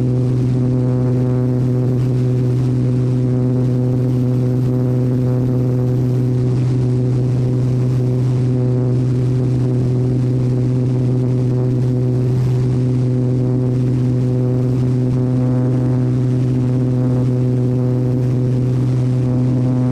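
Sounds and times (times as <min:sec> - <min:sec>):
aircraft engine and propeller droning: 0:00.0 - 0:19.9.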